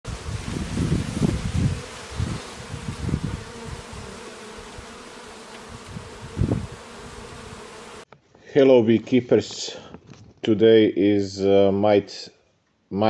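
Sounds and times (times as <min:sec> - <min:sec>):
bees buzzing: 0:00.1 - 0:08.1.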